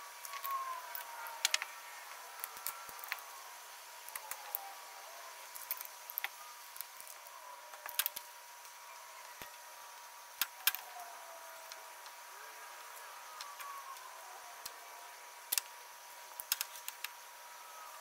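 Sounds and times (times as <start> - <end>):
faint steady tone: 0.0 - 18.0.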